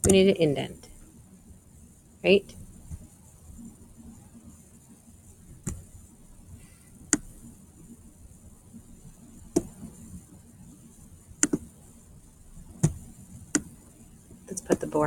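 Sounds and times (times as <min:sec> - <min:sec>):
mouse and keyboard clicks: 0:11.4 - 0:11.6.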